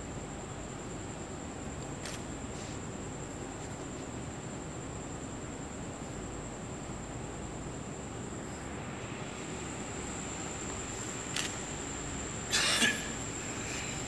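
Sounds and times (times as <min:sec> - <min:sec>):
steady hiss: 0:00.0 - 0:14.0
thin high whine: 0:08.0 - 0:14.0.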